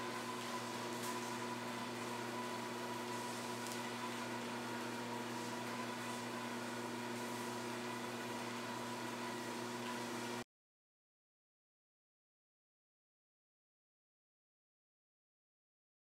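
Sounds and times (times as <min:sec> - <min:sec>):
treadmill running: 0:00.0 - 0:06.7.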